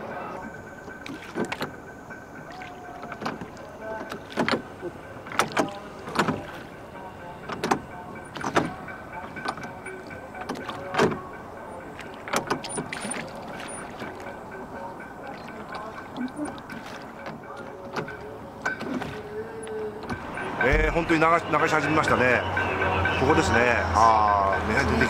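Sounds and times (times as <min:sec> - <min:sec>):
oars splashing and knocking: 0:00.0 - 0:22.2.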